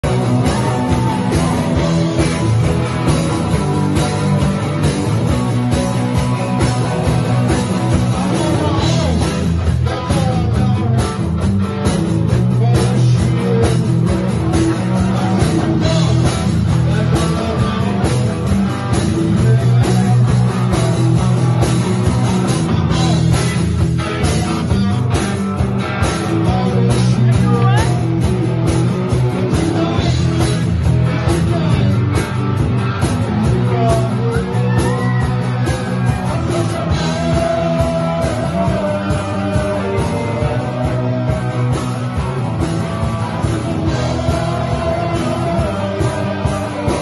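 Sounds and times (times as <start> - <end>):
live rock band with guitar: 0.0 - 47.0.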